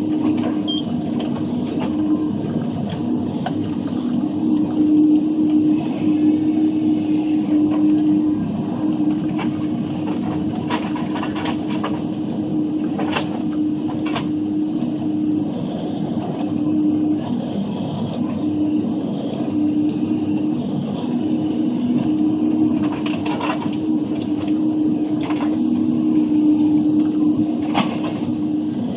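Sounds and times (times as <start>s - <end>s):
diesel engine and hydraulics droning: 0.0s - 28.9s.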